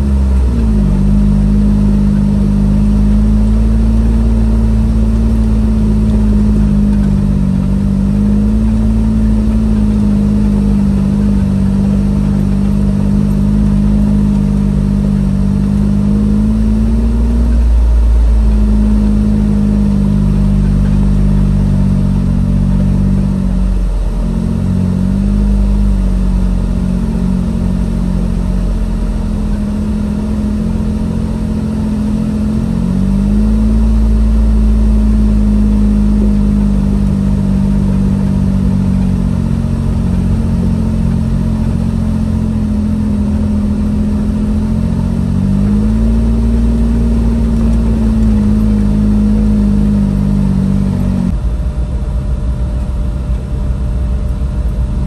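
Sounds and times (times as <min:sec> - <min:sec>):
car engine running at low speed: 0:00.0 - 0:55.0.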